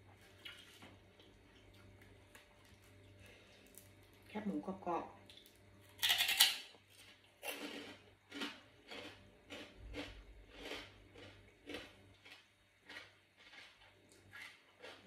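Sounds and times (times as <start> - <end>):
biting crispy pork rind: 5.3 - 15.0
crunchy chewing: 5.3 - 15.0.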